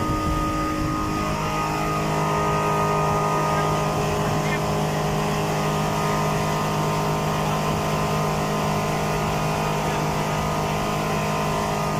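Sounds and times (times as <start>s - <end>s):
boat wake and spray rushing: 0.0s - 11.9s
outboard motor running: 0.0s - 11.9s.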